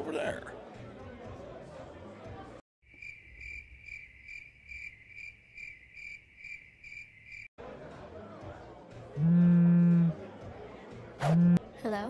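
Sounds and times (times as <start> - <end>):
cricket chirping: 2.9 - 7.5.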